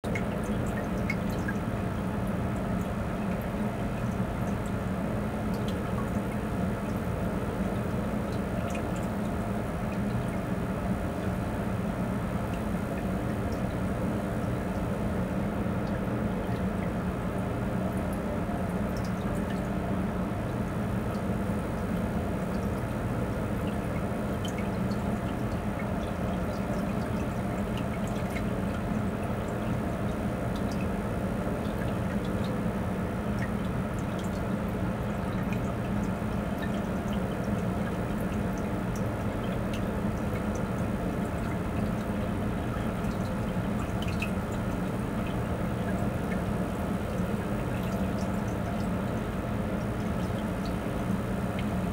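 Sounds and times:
pump hum: 0.0s - 51.9s
water trickling: 0.0s - 51.9s
faint drips and ticks: 0.1s - 51.9s.

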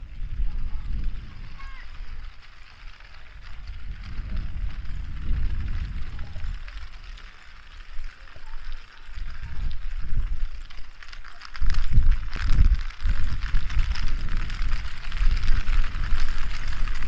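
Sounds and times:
pinwheels spinning whir: 0.0s - 17.0s
wind buffeting microphone: 0.0s - 17.0s.

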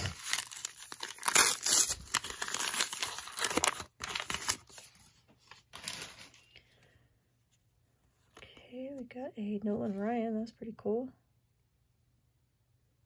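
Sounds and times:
foil wrapper tearing and crinkling: 0.0s - 4.9s.

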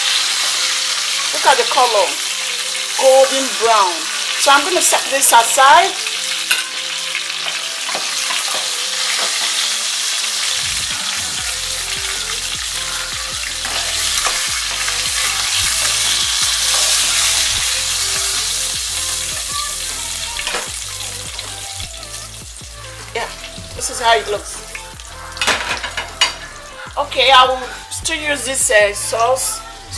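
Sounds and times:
chicken sizzling in hot oil: 0.0s - 29.5s
metal tongs scraping a pan: 6.4s - 6.8s, 12.9s - 18.4s, 19.5s - 20.7s, 25.3s - 26.6s.

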